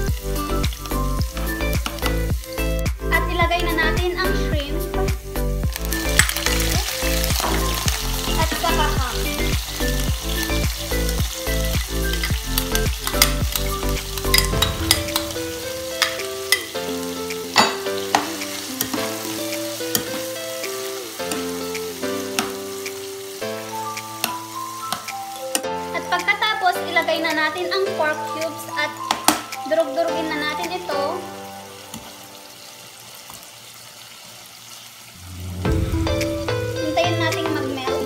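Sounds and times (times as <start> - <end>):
background music with beat: 0.0 - 26.4, 35.4 - 38.0
food sizzling in oil: 0.0 - 38.0.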